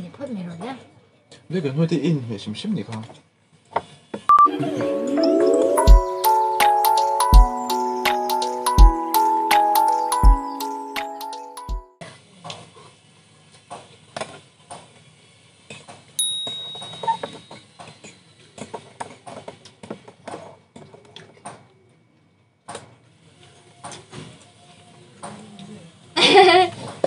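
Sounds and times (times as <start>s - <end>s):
ringing metal clink: 16.2s - 17.6s.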